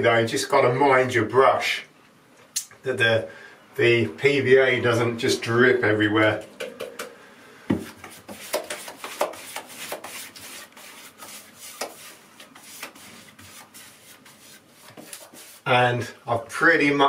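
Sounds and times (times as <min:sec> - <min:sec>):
paintbrush scrubbing swishes: 0:07.9 - 0:15.7.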